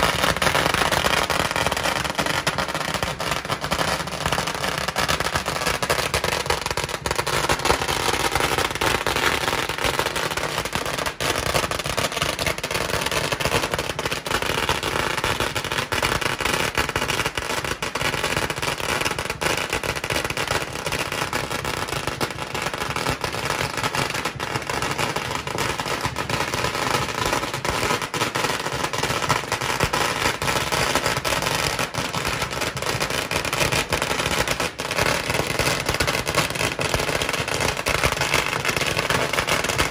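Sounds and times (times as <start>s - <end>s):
firecrackers crackling: 0.0s - 39.9s.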